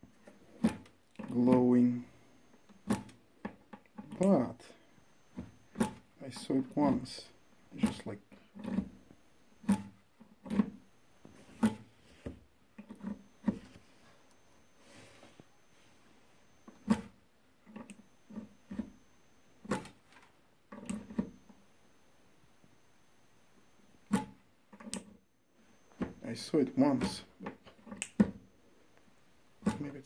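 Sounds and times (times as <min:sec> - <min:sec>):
very high-pitched electrical whine: 0:01.3 - 0:02.9, 0:24.9 - 0:27.2.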